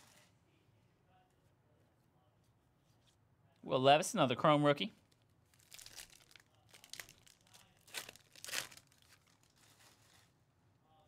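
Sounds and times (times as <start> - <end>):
plastic wrapper tearing and crinkling: 5.0 - 10.4.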